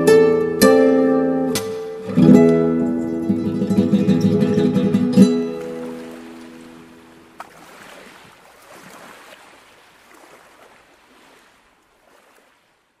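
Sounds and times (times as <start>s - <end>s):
acoustic guitar music: 0.0s - 7.4s
water lapping: 3.2s - 13.0s.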